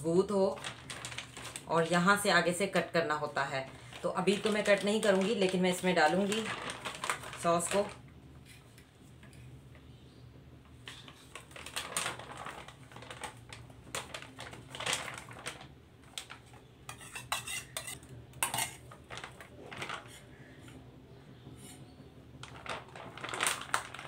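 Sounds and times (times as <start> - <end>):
metal spoon scraping steel bowl: 16.9 - 18.8.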